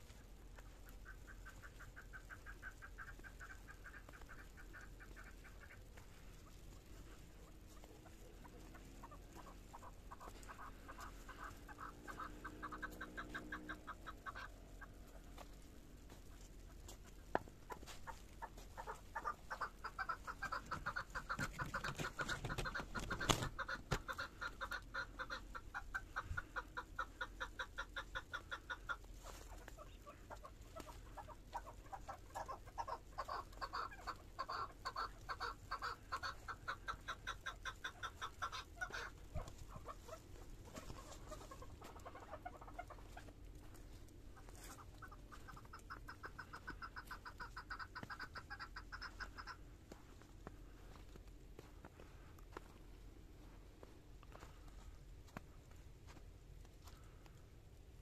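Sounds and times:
footsteps crunching through snow: 49.8s - 57.2s.

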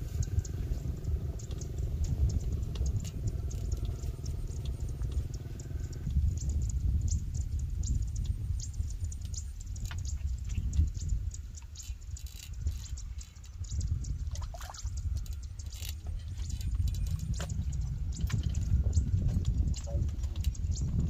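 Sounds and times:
wind buffeting microphone: 0.0s - 21.0s
light clicks and rustles: 8.2s - 21.0s.

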